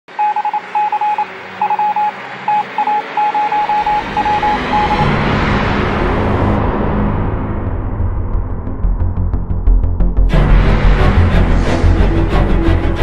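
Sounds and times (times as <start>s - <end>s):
morse code beeps: 0.1s - 5.1s.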